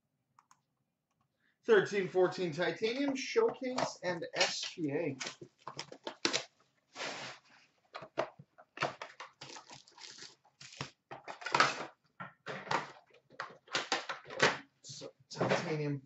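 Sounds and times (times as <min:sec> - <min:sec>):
plastic wrap crinkling and tearing: 0:05.6 - 0:07.3, 0:09.1 - 0:11.0
card packs rustling: 0:08.8 - 0:12.0.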